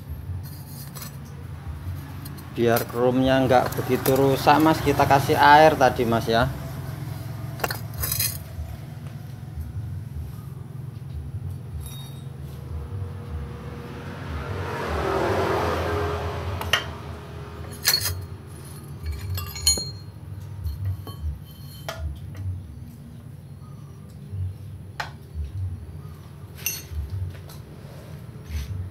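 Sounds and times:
metal tool clinking on muffler: 0:00.3 - 0:06.3, 0:07.5 - 0:09.0, 0:11.5 - 0:12.6, 0:17.6 - 0:23.0, 0:26.5 - 0:27.7.

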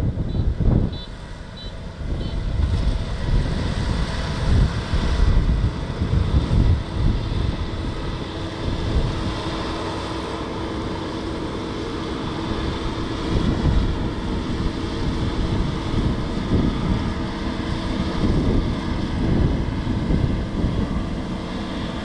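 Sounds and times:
combine harvester hum: 0:00.0 - 0:22.0
wind buffeting microphone: 0:00.0 - 0:22.0
short high beeps: 0:00.3 - 0:02.4.

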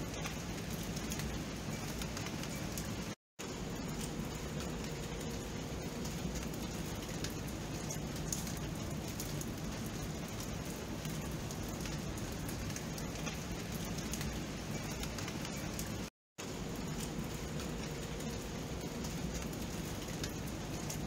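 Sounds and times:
steady rain pattering: 0:00.0 - 0:21.0.

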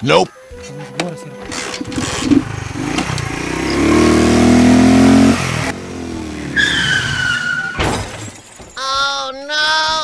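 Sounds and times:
small motorcycle engine revving: 0:01.4 - 0:07.2
high skid screech: 0:06.5 - 0:07.9
loud crash: 0:06.6 - 0:08.8.

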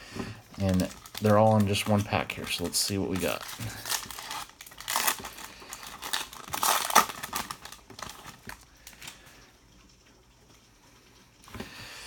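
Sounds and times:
foil wrapper crinkling: 0:00.3 - 0:09.4.

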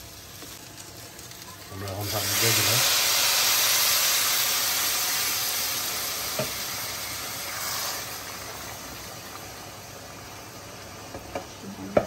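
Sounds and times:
hissing and sizzling in pan: 0:00.0 - 0:12.0
hot water pouring into pot: 0:01.7 - 0:10.8.

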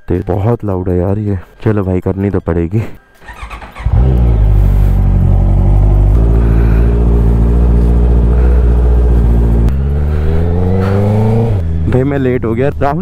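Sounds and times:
motorcycle engine idling: 0:03.2 - 0:11.8.

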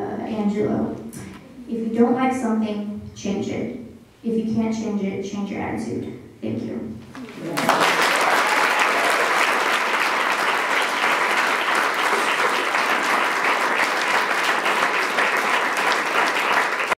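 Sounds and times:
audience applauding: 0:07.2 - 0:16.9.

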